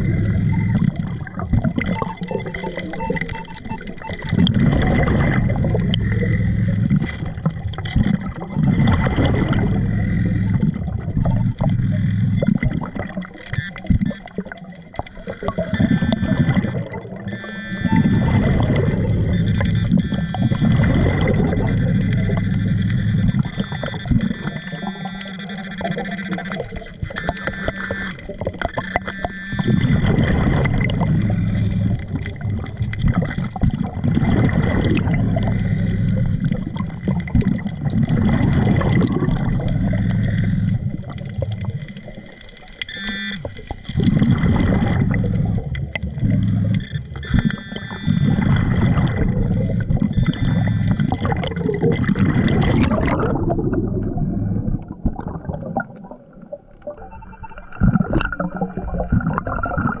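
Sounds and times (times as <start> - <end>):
short electronic pips: 0.0 - 55.3, 55.9 - 60.0
underwater exhaled bubbles: 0.0 - 60.0.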